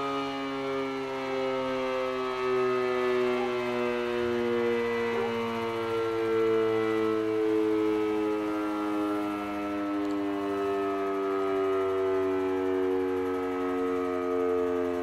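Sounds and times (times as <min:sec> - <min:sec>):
civil defense siren steady tone: 0:00.0 - 0:15.0.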